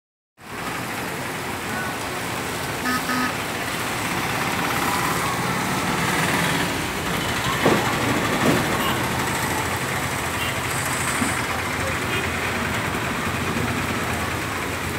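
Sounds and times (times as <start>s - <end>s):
heavy rain on road: 0.4s - 14.9s
vehicles passing on wet road: 0.4s - 14.9s
short double beep: 2.9s - 3.3s.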